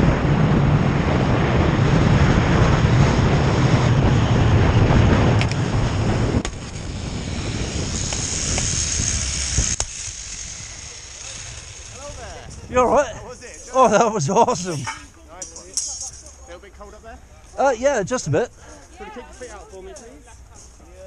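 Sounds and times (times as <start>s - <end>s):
zip line trolley whine: 0.0s - 15.1s
wind rushing over microphone: 0.0s - 16.4s.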